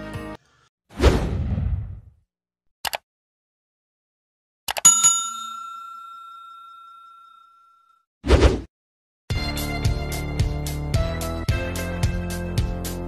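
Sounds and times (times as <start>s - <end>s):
notification bell ding: 4.8s - 8.0s.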